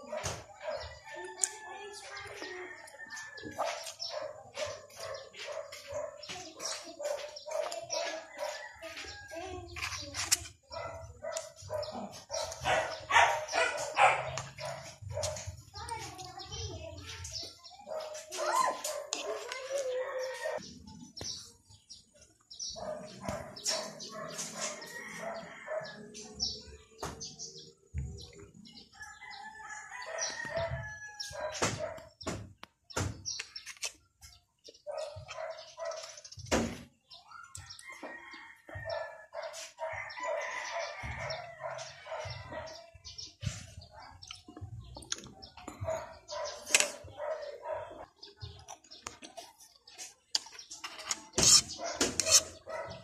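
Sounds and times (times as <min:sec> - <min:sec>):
chickens clucking: 0:00.0 - 0:28.8
mouth clicks and chewing: 0:01.3 - 0:01.6, 0:02.8 - 0:05.3, 0:44.1 - 0:47.0, 0:48.0 - 0:52.7.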